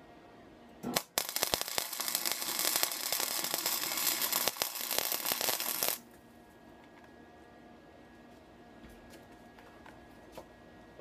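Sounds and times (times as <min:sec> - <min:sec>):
welding arc crackling: 0:00.9 - 0:06.0.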